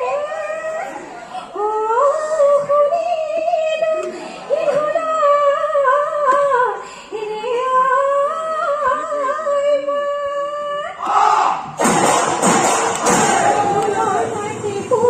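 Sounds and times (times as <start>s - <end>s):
group singing with drums: 11.0s - 15.0s.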